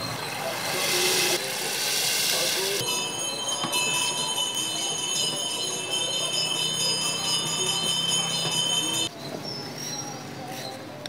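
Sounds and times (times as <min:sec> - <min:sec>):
bell-like chimes in music: 0:02.8 - 0:10.7.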